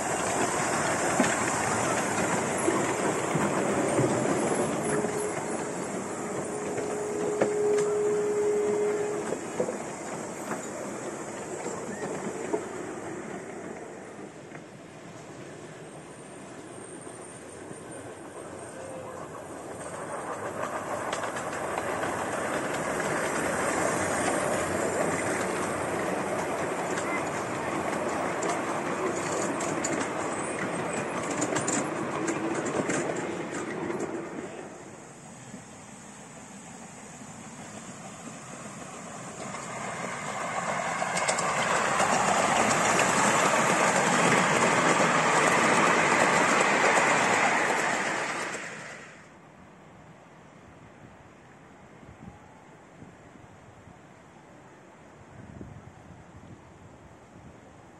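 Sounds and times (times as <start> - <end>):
wheels clicking on track joints: 0.0 - 14.7, 16.8 - 34.8, 38.8 - 49.1
miniature train passing: 0.0 - 57.9.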